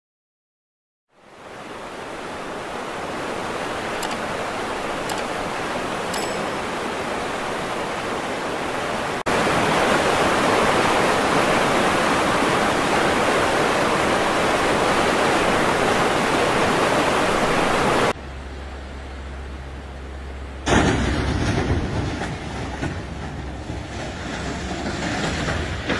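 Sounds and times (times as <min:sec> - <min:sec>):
floodwater rushing in a river: 0:01.1 - 0:18.2.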